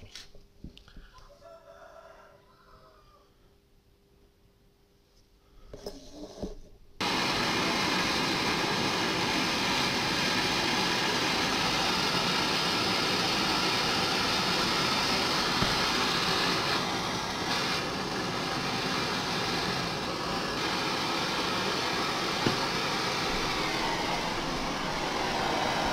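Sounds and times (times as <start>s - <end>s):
blow torch hissing: 7.0s - 25.9s.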